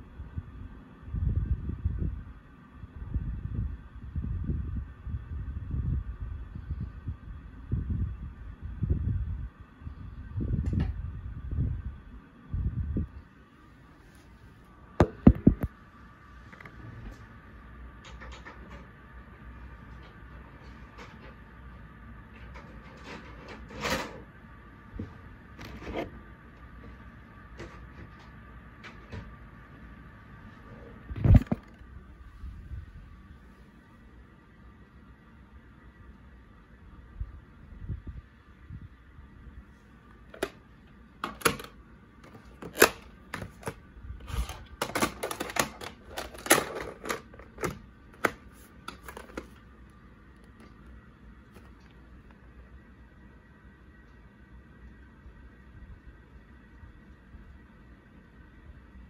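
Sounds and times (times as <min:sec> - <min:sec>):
low hum and hiss: 0:00.0 - 0:59.0
plastic cassette case clattering: 0:40.3 - 0:40.6, 0:41.2 - 0:49.6.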